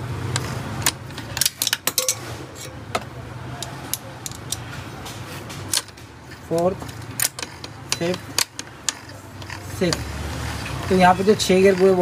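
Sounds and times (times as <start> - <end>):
metal gears clicking: 3.6 - 12.0.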